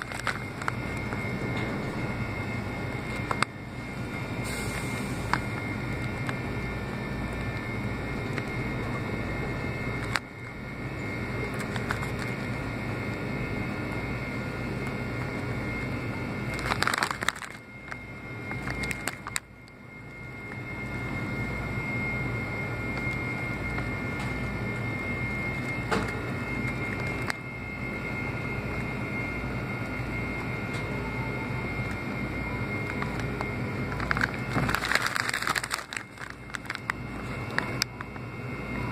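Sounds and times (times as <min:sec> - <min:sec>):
plastic snack bag crinkling: 0:00.0 - 0:01.3, 0:09.9 - 0:10.5, 0:11.4 - 0:12.6, 0:16.5 - 0:19.5, 0:32.9 - 0:37.8
steady machine hum: 0:00.0 - 0:38.9.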